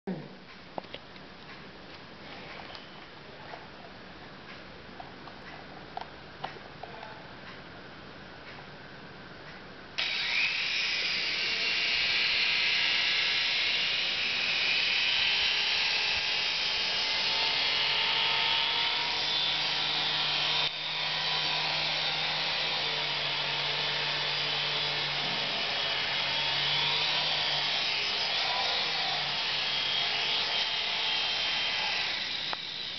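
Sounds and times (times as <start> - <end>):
toy helicopter rotors whirring: 10.0 - 22.0, 22.8 - 32.9.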